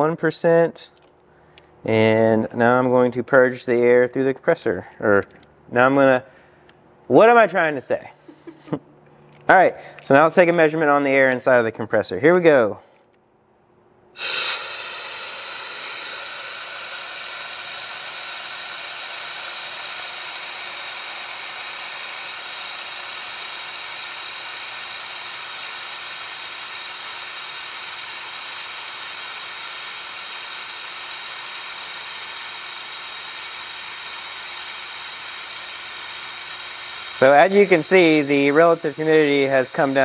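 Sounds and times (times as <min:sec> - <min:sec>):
compressed air hissing: 0:14.2 - 0:40.0.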